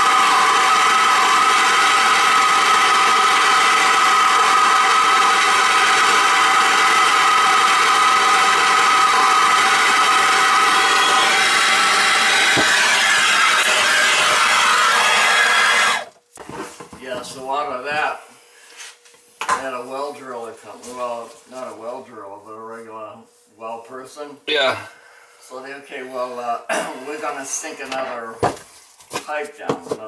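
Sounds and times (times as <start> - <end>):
gas torch hissing: 0.0 - 16.1.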